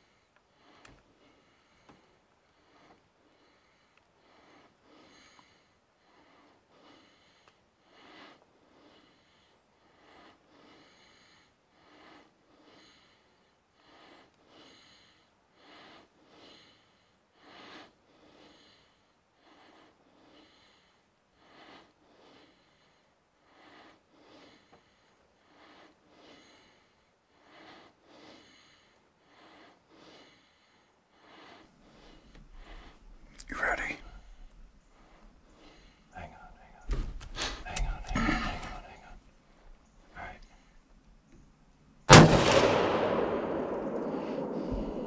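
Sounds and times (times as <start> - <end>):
person breathing: 0.0 - 40.9, 42.6 - 45.0.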